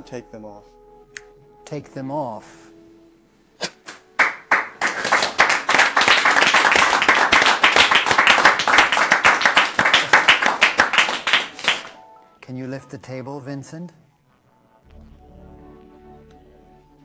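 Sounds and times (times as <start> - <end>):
audience clapping: 3.8 - 12.0.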